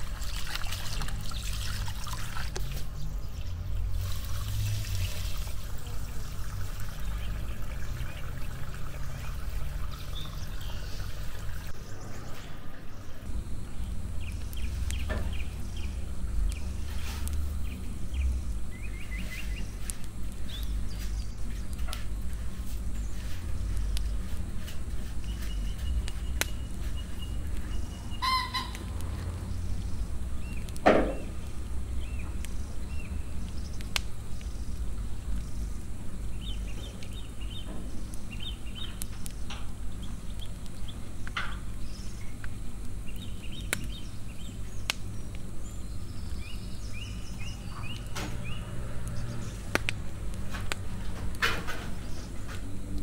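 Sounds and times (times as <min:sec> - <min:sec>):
steady low hum: 0:00.0 - 0:53.0
chickens clucking: 0:27.8 - 0:29.1.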